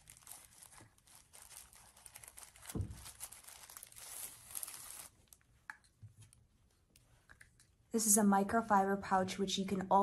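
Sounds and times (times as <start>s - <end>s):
plastic sleeve crinkling: 0.0s - 5.6s.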